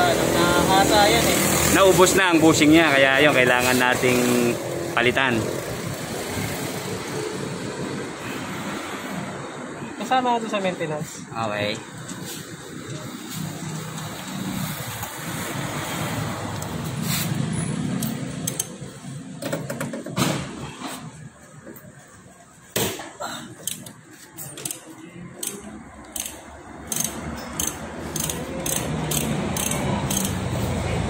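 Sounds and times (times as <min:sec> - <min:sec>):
ratchet wrench clicking: 0:18.0 - 0:18.8, 0:23.6 - 0:24.0, 0:24.6 - 0:30.5.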